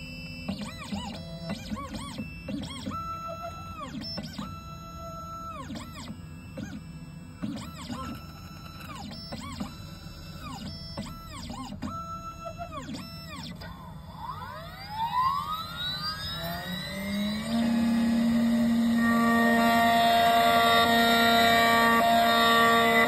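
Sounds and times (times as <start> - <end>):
steady motor hum: 0.0 - 23.0
stepper motors whining: 7.4 - 23.0.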